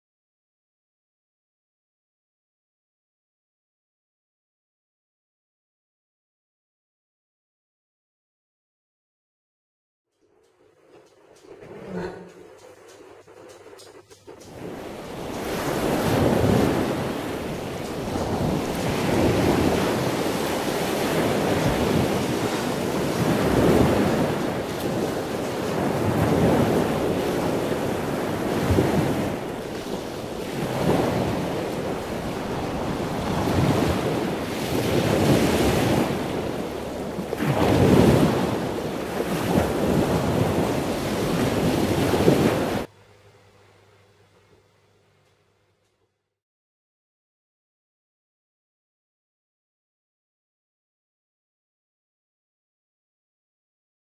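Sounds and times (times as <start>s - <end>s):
sea waves rushing: 14.2s - 42.9s.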